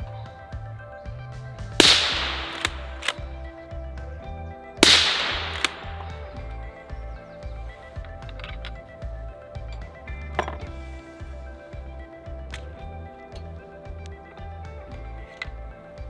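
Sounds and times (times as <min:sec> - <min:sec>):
background music with low beat: 0:00.0 - 0:16.0
rifle shots with echo: 0:01.8 - 0:03.5, 0:04.8 - 0:06.5.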